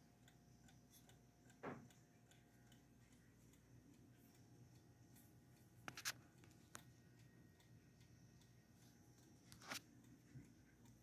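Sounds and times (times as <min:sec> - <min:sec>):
phone handling clicks and scrapes: 0:05.9 - 0:06.2, 0:09.5 - 0:09.8.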